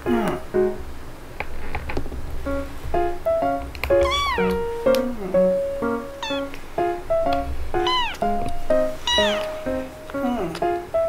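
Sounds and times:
plucked notes background music: 2.5 - 11.0
kitten meowing: 3.9 - 5.1, 5.9 - 6.6, 7.3 - 10.0.

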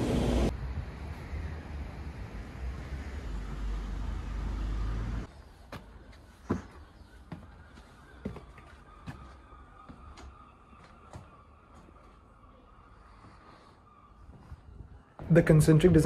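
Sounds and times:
footsteps on stone floor: 5.6 - 12.2.

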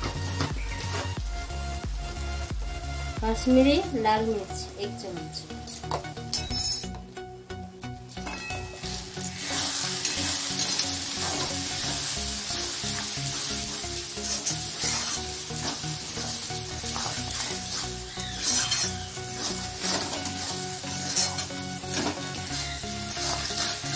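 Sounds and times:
masala sizzling in hot oil: 0.0 - 6.3, 7.8 - 23.9
spatula scraping pan: 8.8 - 23.9.

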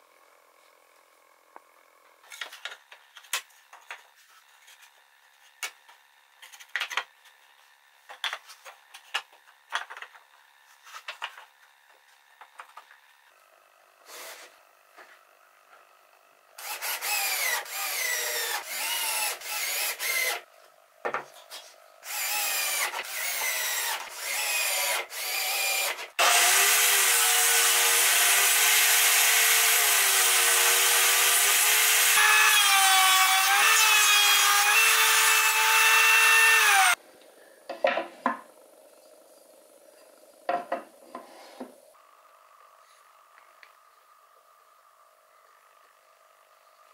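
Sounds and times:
table saw ripping wood: 25.0 - 37.0.

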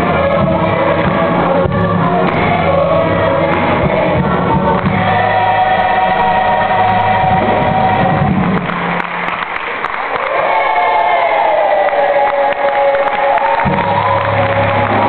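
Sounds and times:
gospel choir singing: 0.0 - 9.0, 12.0 - 15.0.

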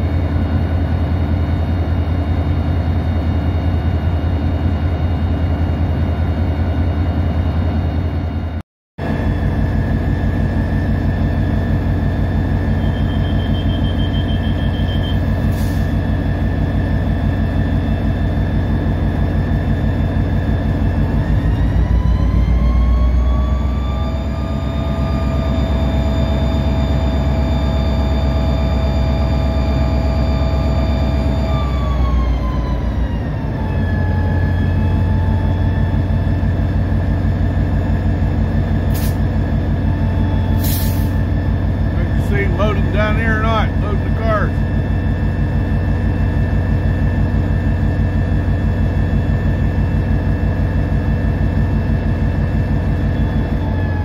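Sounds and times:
locomotive diesel engine under load: 0.0 - 54.0.

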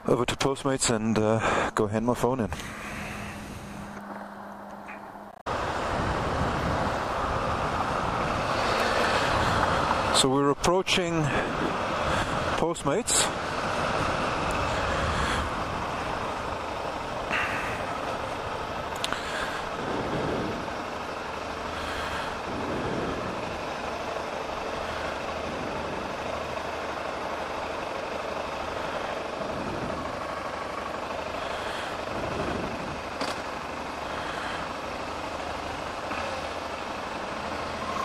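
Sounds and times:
motorcycle engine running: 13.2 - 38.0.

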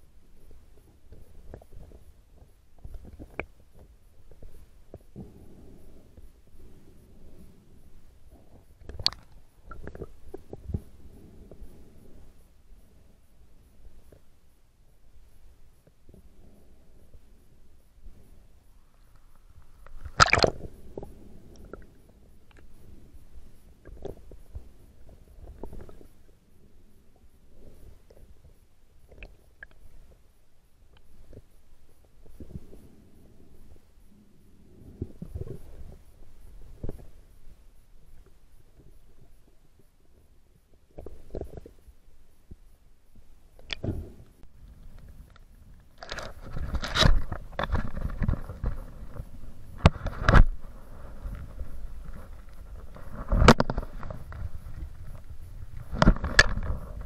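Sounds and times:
faint underwater clicks and gurgles: 0.0 - 57.0
camera rubbing against wetsuit: 46.0 - 57.0.

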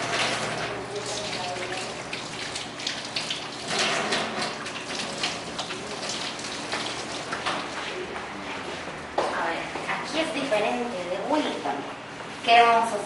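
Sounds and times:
tap water running into sink: 0.0 - 8.0
hands washing with splashing: 0.0 - 8.2.

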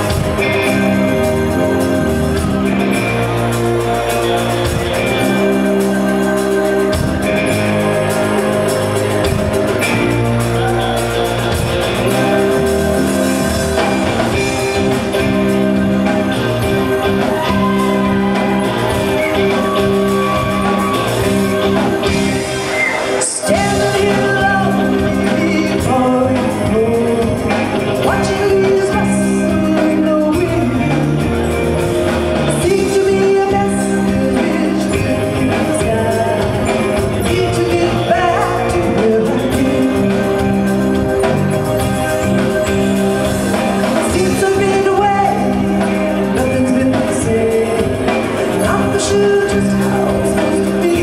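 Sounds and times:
live rock band playing: 0.0 - 51.0.

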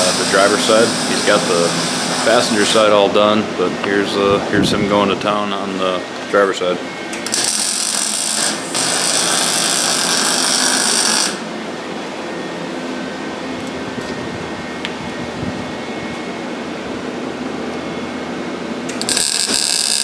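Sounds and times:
welding arc hissing: 0.0 - 2.8, 7.2 - 11.5, 18.9 - 20.0.

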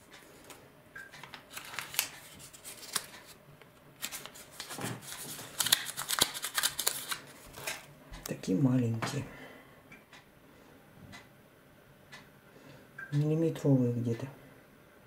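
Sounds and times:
seed packet rustling: 1.2 - 3.4, 4.0 - 7.8.

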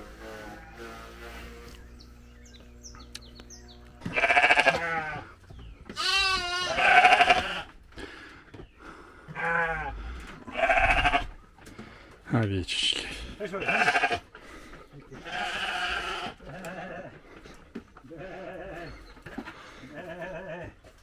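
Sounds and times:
sheep bleating: 0.2 - 1.2, 4.0 - 7.7, 9.3 - 11.4, 13.4 - 14.3, 15.2 - 17.2, 18.0 - 19.0, 19.8 - 20.8.

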